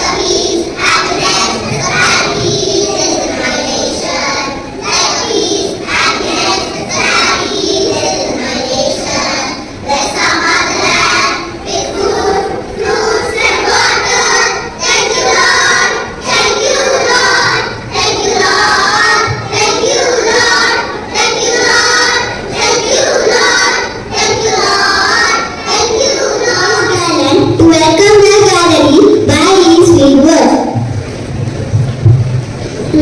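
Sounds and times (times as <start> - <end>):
children singing in unison: 0.0 - 28.1.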